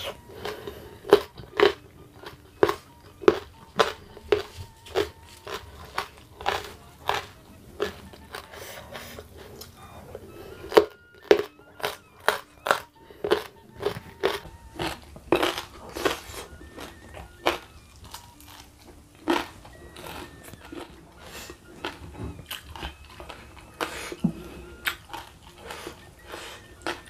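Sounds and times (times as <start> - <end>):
person chewing crisp food: 0.0 - 27.0.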